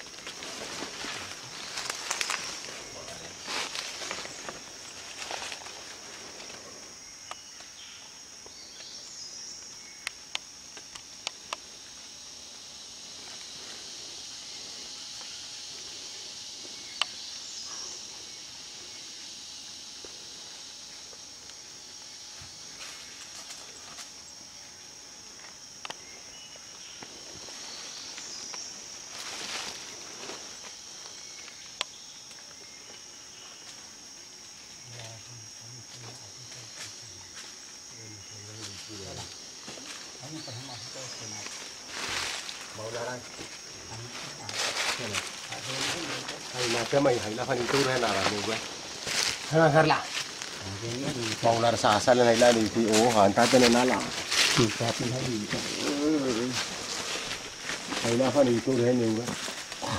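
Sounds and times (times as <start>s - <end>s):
footsteps in undergrowth: 0.0s - 6.7s, 25.3s - 34.6s, 38.6s - 59.9s
leaves rustling: 0.0s - 8.0s, 26.7s - 59.9s
insects high-pitched drone: 0.0s - 59.9s
twigs snapping: 1.6s - 2.6s.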